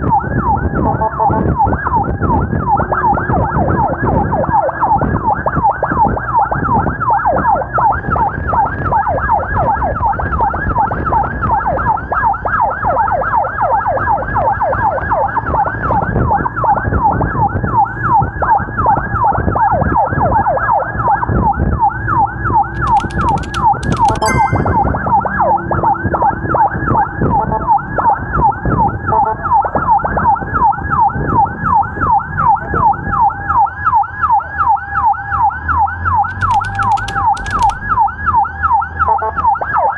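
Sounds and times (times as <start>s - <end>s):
siren yelping: 0.0s - 10.6s, 27.6s - 39.9s
engine and road noise: 25.3s - 39.9s.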